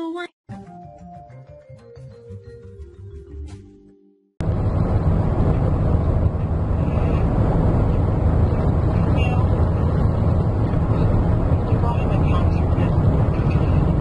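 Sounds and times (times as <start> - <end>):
car cabin road and wind rumble: 4.4 - 14.0.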